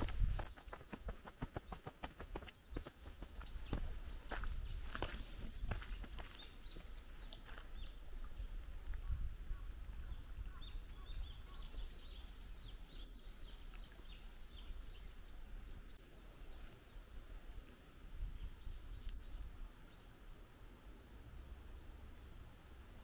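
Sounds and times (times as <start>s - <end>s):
birds chirping and singing: 2.7s - 16.0s.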